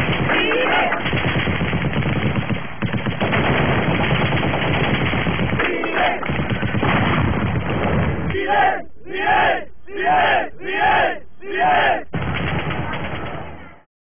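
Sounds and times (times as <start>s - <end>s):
automatic gunfire: 0.0s - 8.2s
voices shouting: 0.3s - 1.0s, 5.6s - 6.2s, 8.3s - 12.1s.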